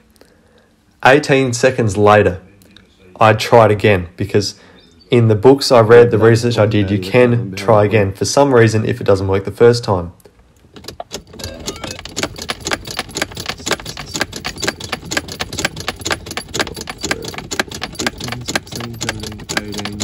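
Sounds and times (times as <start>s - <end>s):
keys jingling: 10.8s - 20.0s.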